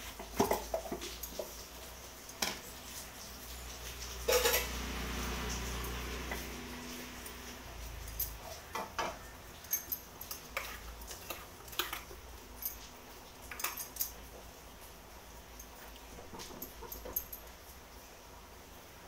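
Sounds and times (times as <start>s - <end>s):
metal spoon clinking on pot: 4.2s - 4.8s, 7.8s - 14.3s, 15.7s - 17.6s.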